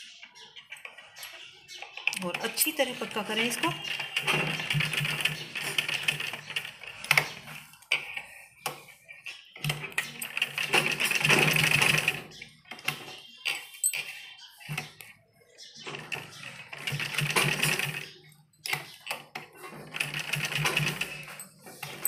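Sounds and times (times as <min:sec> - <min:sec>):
sewing machine stitching: 0:02.2 - 0:07.7, 0:09.6 - 0:13.0, 0:15.9 - 0:22.0.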